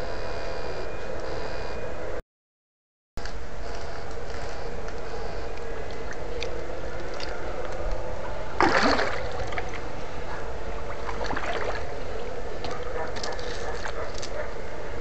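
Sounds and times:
steady low hum: 0.0s - 2.2s, 3.2s - 15.0s
loud splash: 8.6s - 9.8s, 10.9s - 12.0s
water splashing: 8.6s - 10.0s, 10.6s - 14.0s.

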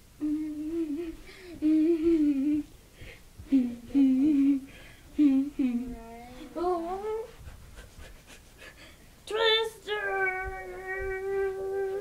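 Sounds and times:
girl humming: 0.2s - 2.7s, 3.4s - 7.4s, 9.3s - 12.0s.

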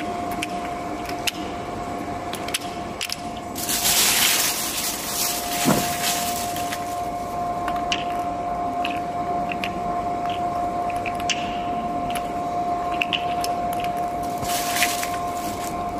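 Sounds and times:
steady hum: 0.0s - 15.9s
steel balls clicking: 7.6s - 14.1s.

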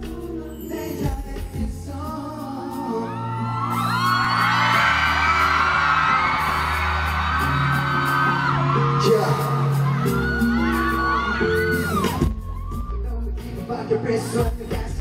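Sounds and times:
live pop music through loudspeakers: 0.0s - 15.0s
crowd screaming: 2.4s - 13.4s.

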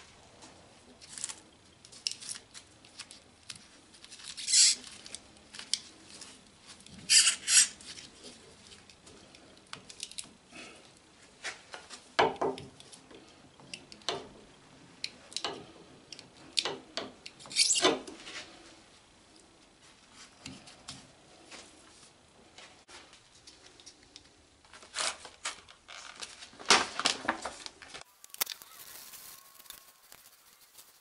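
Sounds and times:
scratchy rustles and scrapes: 28.6s - 31.0s.

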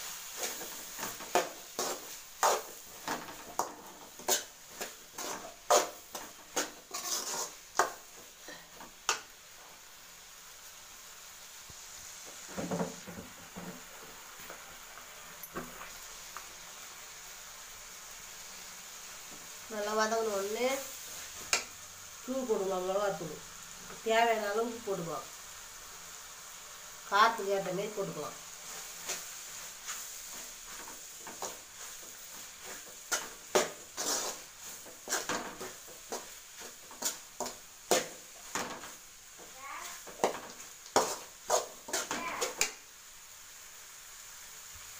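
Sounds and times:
food sizzling in a pan: 0.0s - 44.9s
ladle scraping and knocking pan: 0.4s - 8.0s, 30.3s - 39.0s, 40.1s - 42.7s.

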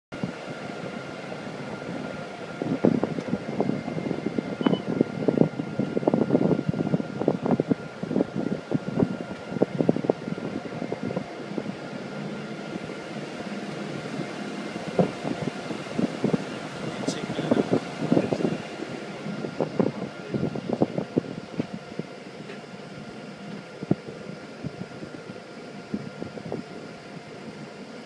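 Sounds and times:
boat engines humming: 0.1s - 28.0s
faint engine whine: 0.1s - 28.0s
hull thumps and buffeting: 13.7s - 22.7s.

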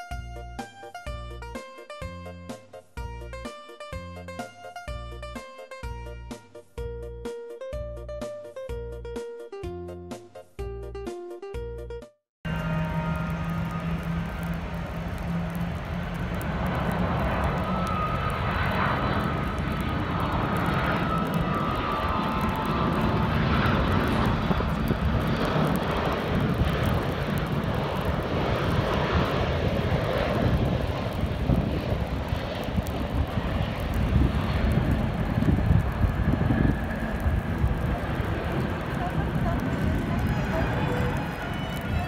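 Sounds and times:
jet engine rumble: 12.5s - 42.0s
thin jet whine: 12.5s - 42.0s.

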